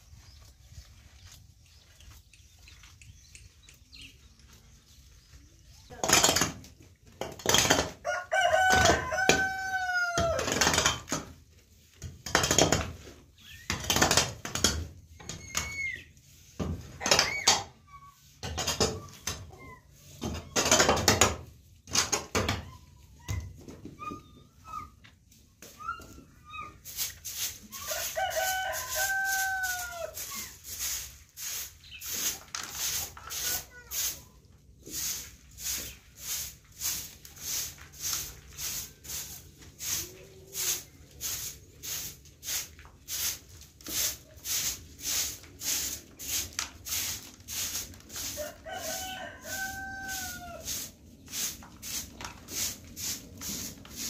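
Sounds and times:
rooster crowing: 8.0s - 10.5s, 27.8s - 30.2s, 48.4s - 50.8s
hoe scraping earth floor: 26.7s - 34.2s, 34.8s - 54.0s.

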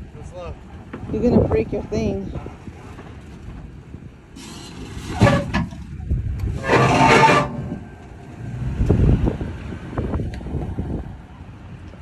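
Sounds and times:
truck engine rumbling: 0.0s - 12.0s
tire grinding over board and rock: 2.7s - 10.3s.

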